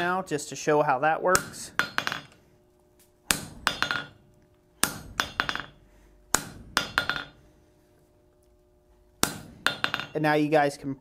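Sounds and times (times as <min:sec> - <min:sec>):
hammer striking steel tool: 0:01.3 - 0:02.4, 0:03.3 - 0:04.2, 0:04.8 - 0:07.4, 0:09.2 - 0:10.2.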